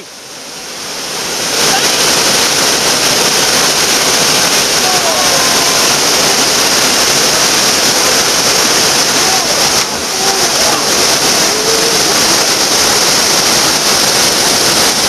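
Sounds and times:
waterfall roaring: 0.0s - 15.0s
faint shouts: 4.8s - 6.1s, 9.1s - 12.3s.

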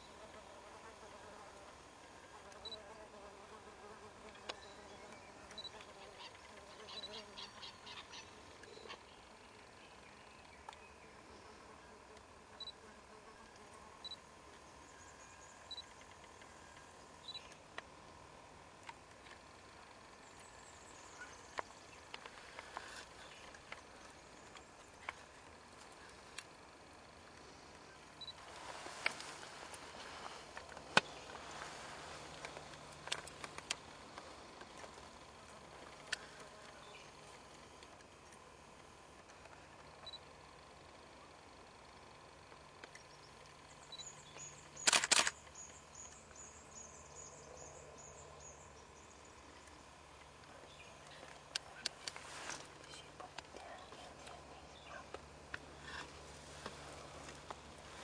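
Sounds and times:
outdoor background hiss: 0.0s - 58.0s
faint high chirps: 17.2s - 17.6s
camera shutter clicks: 44.8s - 45.5s.

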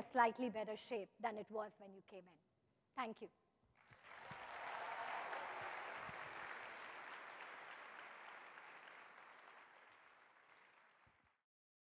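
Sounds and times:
audience applauding: 3.8s - 11.4s.

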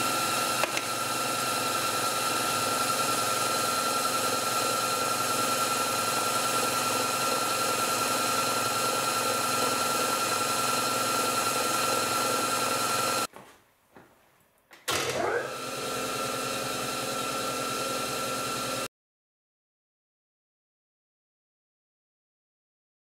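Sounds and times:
lathe running: 0.0s - 13.3s, 14.9s - 18.9s.

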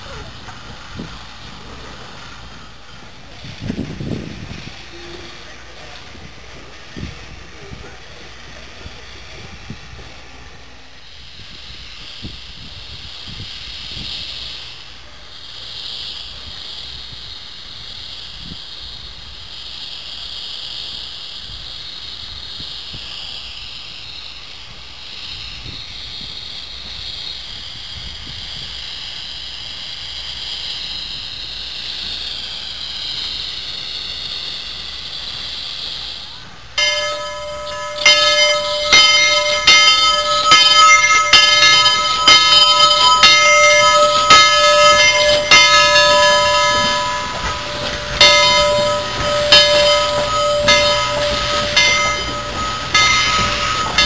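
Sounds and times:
steam locomotive hissing: 0.0s - 54.0s
wind buffeting microphone: 3.3s - 5.0s.

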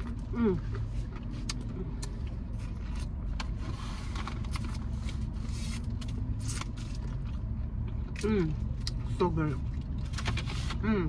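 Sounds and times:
crunching and chewing chicken wings: 0.0s - 10.8s
low hum inside a car: 0.0s - 11.0s.

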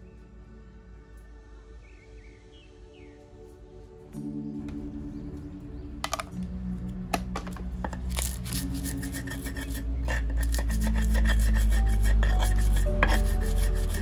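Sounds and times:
hand scraping and rasping: 7.3s - 14.0s.

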